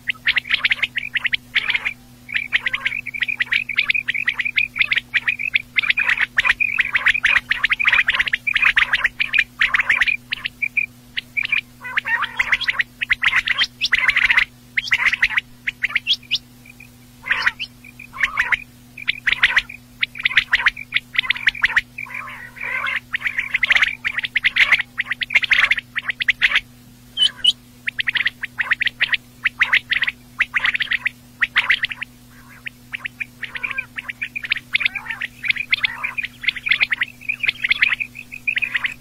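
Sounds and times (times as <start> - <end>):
faint steady hum: 0.0 - 39.0
quail calling: 0.0 - 39.0.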